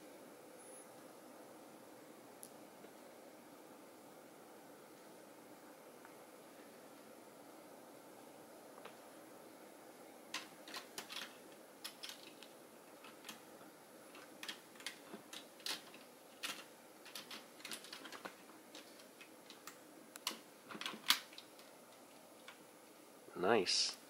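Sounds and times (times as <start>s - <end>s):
plastic toy parts clicking: 10.3s - 13.4s, 14.1s - 21.7s.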